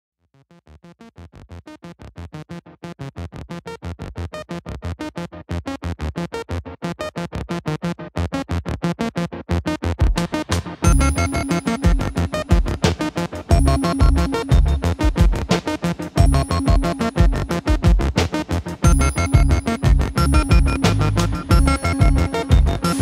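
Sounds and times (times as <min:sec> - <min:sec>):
electronic music pulse: 0:10.8 - 0:23.0.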